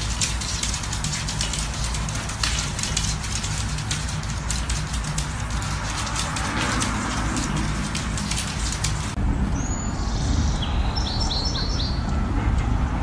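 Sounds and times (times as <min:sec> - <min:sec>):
steady low rumble: 0:00.0 - 0:11.4
small birds chirping: 0:09.6 - 0:12.1.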